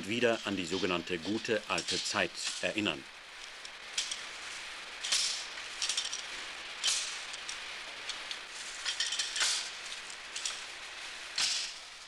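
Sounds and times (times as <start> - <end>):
steady hiss: 0.0 - 12.0
clamps clinking and scraping: 5.1 - 7.1, 8.7 - 9.8.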